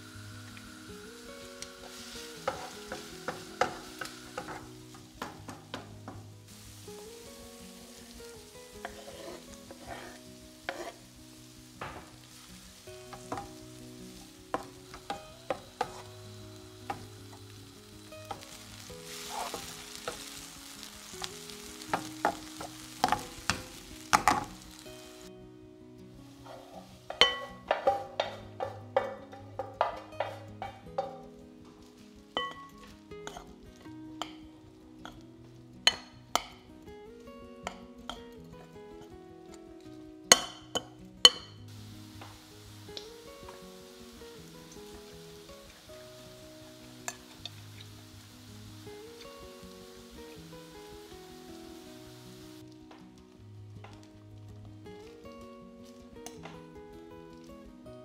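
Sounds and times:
onion sizzling in oil: 0.0s - 39.6s, 40.3s - 57.7s
soft background music: 0.0s - 58.0s
spatula tapping and scraping pan: 1.8s - 6.3s, 8.8s - 11.0s, 13.1s - 13.6s, 14.5s - 16.2s, 21.9s - 24.6s, 26.5s - 31.3s, 32.4s - 33.5s.

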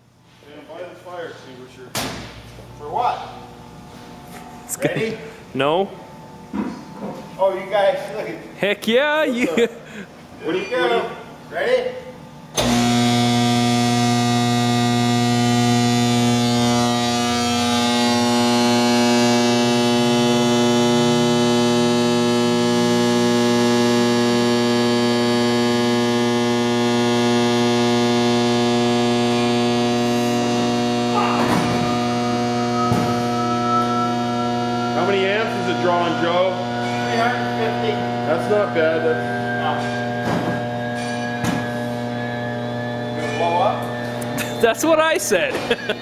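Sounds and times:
electric motor humming: 12.5s - 46.0s.

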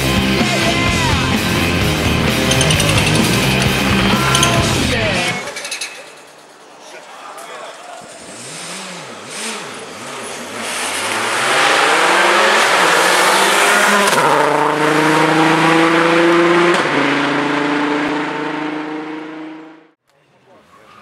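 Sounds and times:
rally car engine revving: 8.0s - 19.9s.

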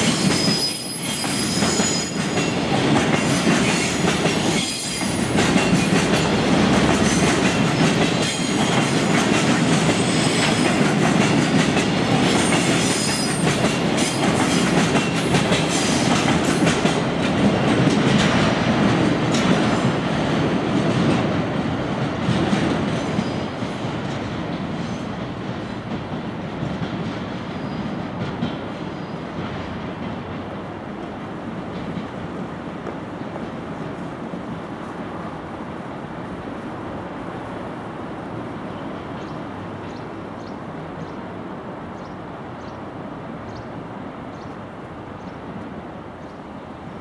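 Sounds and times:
freight train rolling past: 0.0s - 47.0s.

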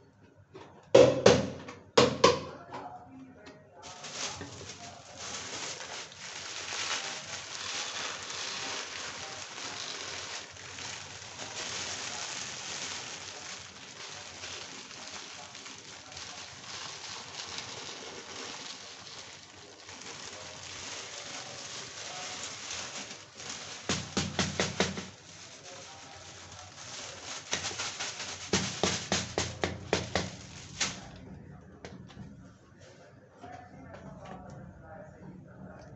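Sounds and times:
peanuts sizzling in a wok: 6.6s - 24.0s.

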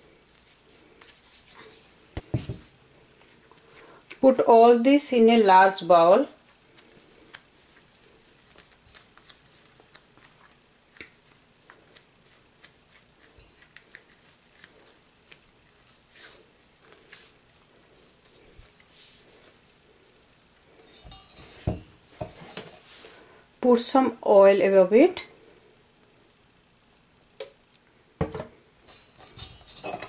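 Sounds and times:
hands handling dough: 0.0s - 4.6s, 6.0s - 23.3s.

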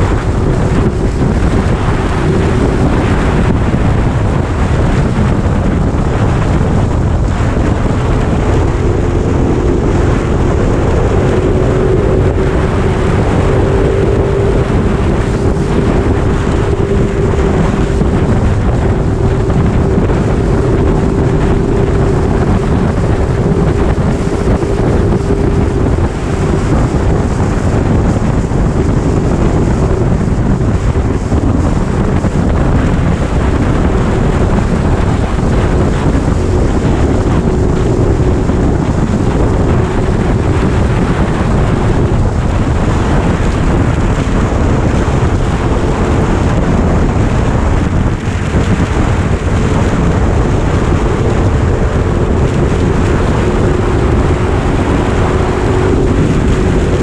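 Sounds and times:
motorcycle engine cruising: 0.0s - 57.0s
wind noise on microphone: 0.0s - 57.0s.

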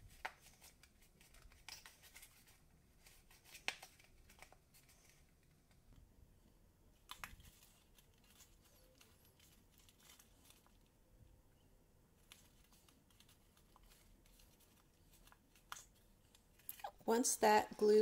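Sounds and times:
cardstock rustling and clicking: 0.0s - 5.8s, 7.0s - 10.9s, 12.2s - 16.8s.

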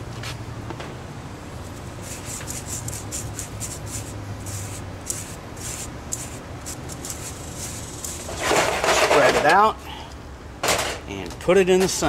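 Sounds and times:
powder scratching through wire mesh: 2.0s - 9.3s.

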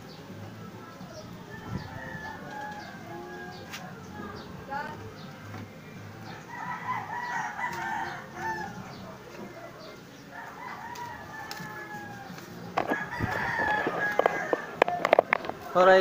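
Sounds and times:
rooster crowing: 6.5s - 8.8s, 10.3s - 15.1s.

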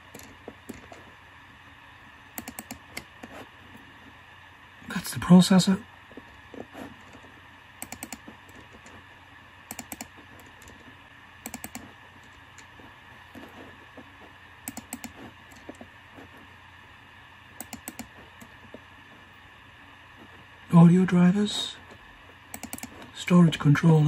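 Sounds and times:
computer mouse clicking: 0.0s - 1.0s, 2.3s - 3.5s, 6.1s - 9.0s, 9.6s - 10.8s, 11.4s - 15.9s, 17.6s - 18.8s, 22.5s - 23.1s.

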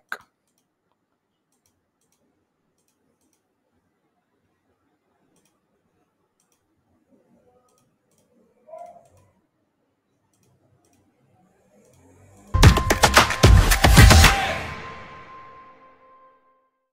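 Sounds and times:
computer mouse clicks: 0.4s - 3.6s, 5.1s - 6.8s, 7.6s - 9.4s, 10.2s - 12.5s.

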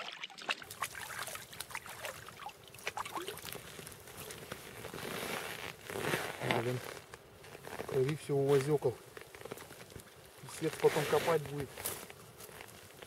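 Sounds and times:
small splashes in slushy water: 0.0s - 4.8s.

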